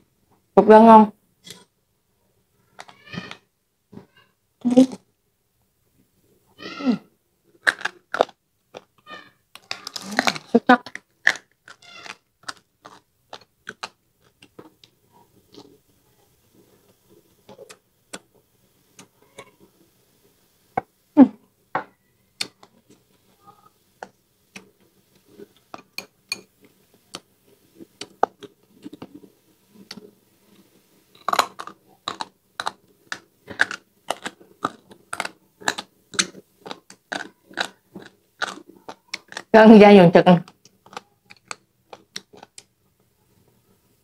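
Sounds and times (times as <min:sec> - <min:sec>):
chewing and lip smacking: 0:31.2 - 0:39.5.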